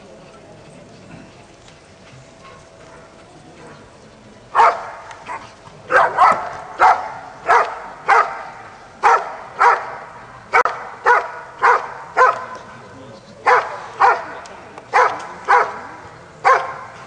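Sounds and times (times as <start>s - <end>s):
dog barking: 4.6s - 12.6s, 13.4s - 15.8s, 16.4s - 17.0s.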